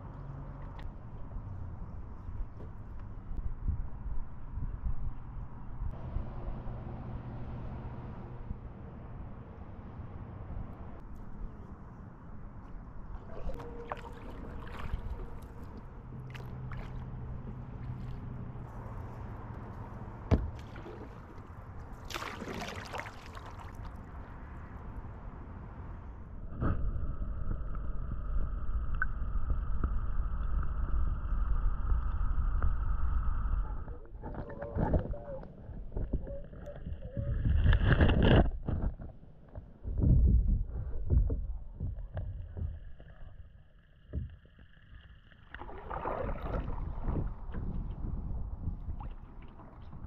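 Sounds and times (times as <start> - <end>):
low steady hum: 0.0 - 50.0
muffled underwater river rumble: 12.4 - 18.8, 26.2 - 38.8, 39.7 - 50.0
water lapping against hull: 12.6 - 24.6, 40.6 - 50.0
water drips and splashes: 13.2 - 18.7, 20.4 - 24.4, 45.5 - 47.7
underwater knocks and bumps: 20.3 - 21.4, 37.5 - 43.2, 44.1 - 44.4.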